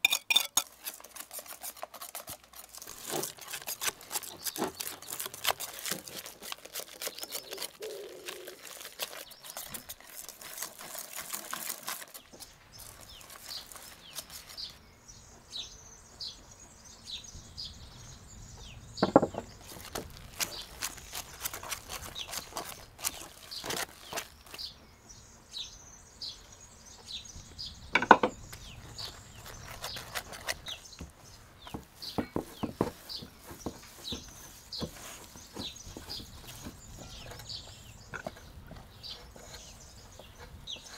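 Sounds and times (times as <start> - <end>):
whisk scraping a bowl: 0.0 - 12.2
wooden spoon stirring dough: 0.0 - 14.8, 29.2 - 40.9
birds chirping: 0.0 - 40.9.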